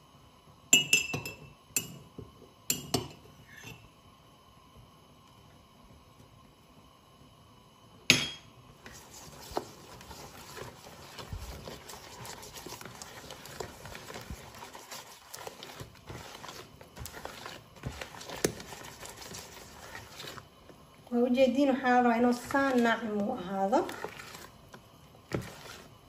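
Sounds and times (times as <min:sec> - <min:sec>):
utensil stirring batter in bowl: 0:08.8 - 0:26.0.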